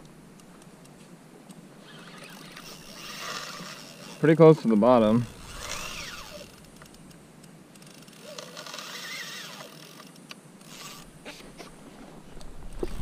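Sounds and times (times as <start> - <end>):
faint whine: 0.0 - 13.0
fishing reel clicking: 1.8 - 4.4, 5.1 - 7.2, 7.8 - 11.1.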